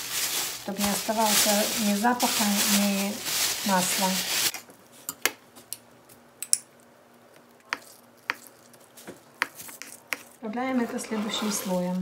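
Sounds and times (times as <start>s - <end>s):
plastic bag rustling: 0.0s - 5.0s.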